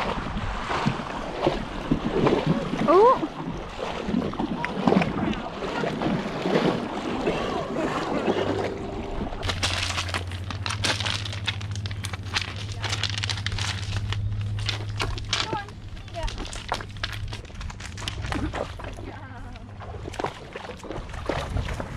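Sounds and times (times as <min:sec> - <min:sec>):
low steady hum: 0:00.0 - 0:21.9
water splashing around horse legs: 0:00.0 - 0:21.9
sharp clicks and crackles: 0:09.4 - 0:18.7.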